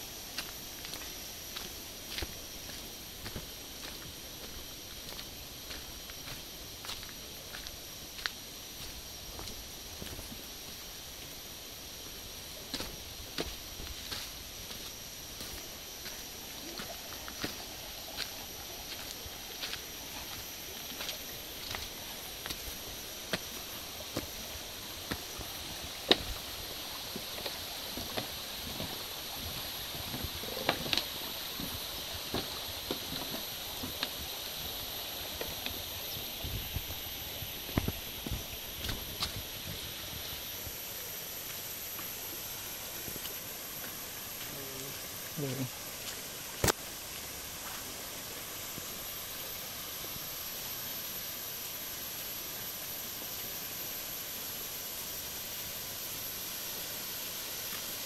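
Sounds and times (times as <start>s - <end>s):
footsteps walking: 0.3s - 11.4s, 12.7s - 24.4s, 27.1s - 34.3s, 37.6s - 40.1s, 41.4s - 44.6s, 47.6s - 48.0s.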